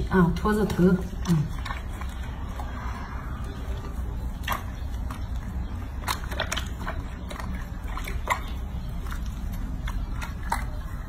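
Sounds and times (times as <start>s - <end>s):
soapy water sloshing in a sink: 0.0s - 11.0s
short splashes and squelches: 3.6s - 11.0s.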